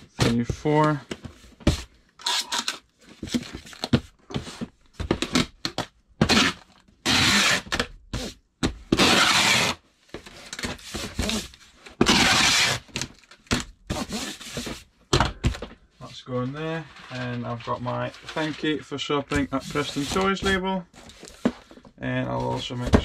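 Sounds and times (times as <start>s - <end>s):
packing tape ripping: 6.2s - 7.7s, 9.0s - 9.8s, 12.0s - 13.1s.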